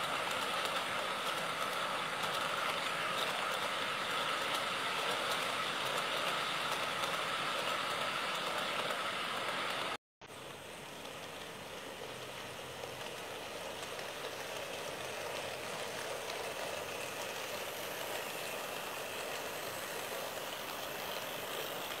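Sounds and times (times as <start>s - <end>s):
model train whirring rumble: 0.0s - 22.0s.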